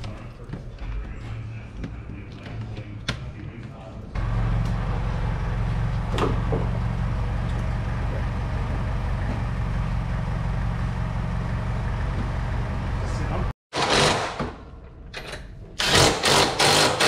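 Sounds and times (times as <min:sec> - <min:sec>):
low mechanical hum: 0:00.0 - 0:13.5.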